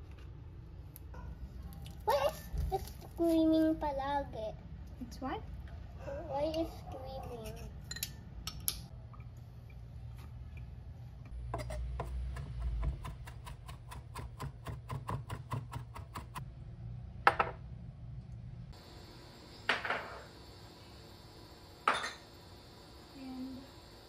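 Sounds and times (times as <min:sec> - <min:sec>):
knife chopping on plastic board: 0:11.6 - 0:16.4.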